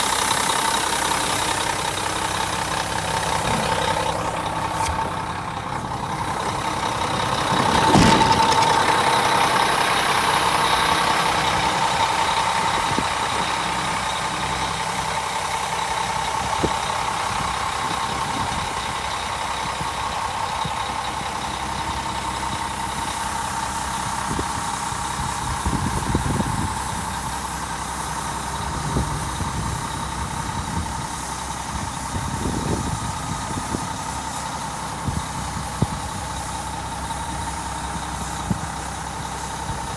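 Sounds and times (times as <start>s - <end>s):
diesel truck engine idling: 0.0s - 39.9s
brief low rumbles: 2.8s - 9.4s.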